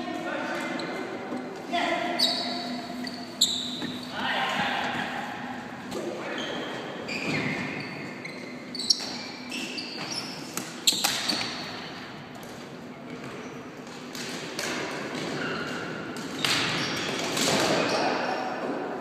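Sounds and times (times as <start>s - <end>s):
trainers squeaking on floor: 0.5s - 4.3s, 6.3s - 11.9s.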